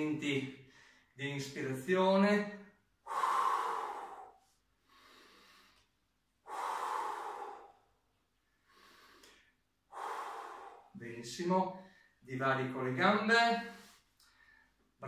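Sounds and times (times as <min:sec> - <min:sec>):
man breathing deeply: 0:00.6 - 0:01.2, 0:03.0 - 0:11.0, 0:11.8 - 0:12.2, 0:13.7 - 0:15.0.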